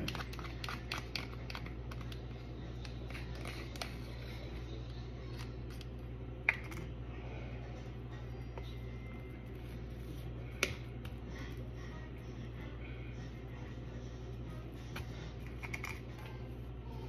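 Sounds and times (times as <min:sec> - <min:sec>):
steady low hum: 0:00.0 - 0:17.0
plastic cup clicks and crinkles: 0:15.4 - 0:16.0.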